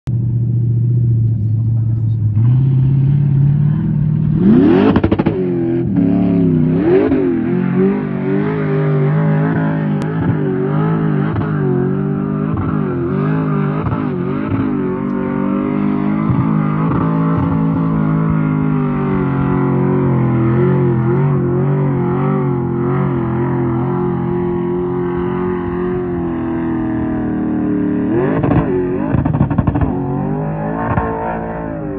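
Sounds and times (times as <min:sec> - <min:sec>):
engine revving hard: 0:02.3 - 0:31.9.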